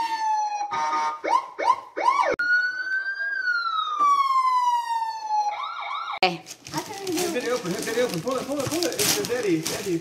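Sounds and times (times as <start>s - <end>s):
electronic police siren: 0.0s - 6.2s.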